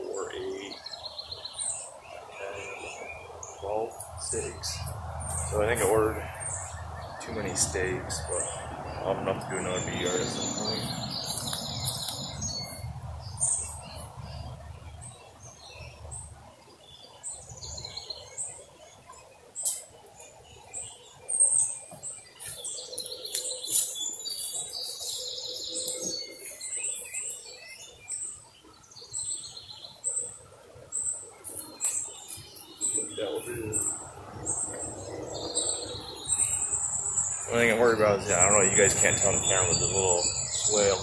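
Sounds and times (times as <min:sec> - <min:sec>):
birds chirping and calling: 0:00.0 - 0:41.0
sharp clicks: 0:11.2 - 0:12.3.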